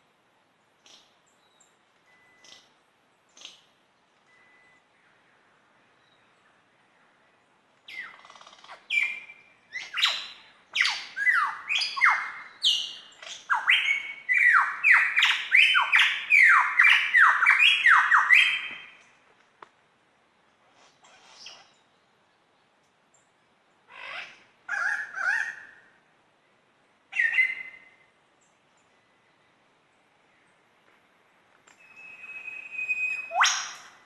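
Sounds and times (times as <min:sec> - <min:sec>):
lyrebird whistling song: 0:00.9 - 0:02.6, 0:07.9 - 0:19.0, 0:27.1 - 0:28.0, 0:31.8 - 0:34.0.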